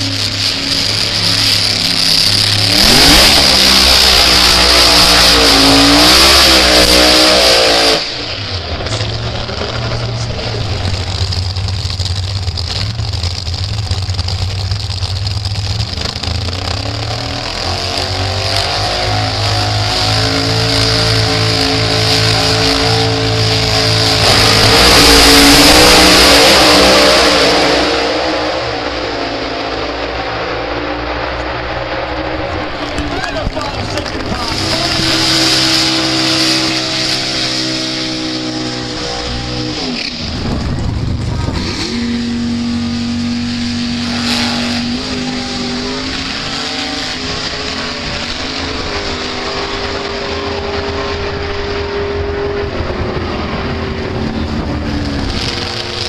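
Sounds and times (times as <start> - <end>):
drag racing engines revving: 0.0 - 56.0.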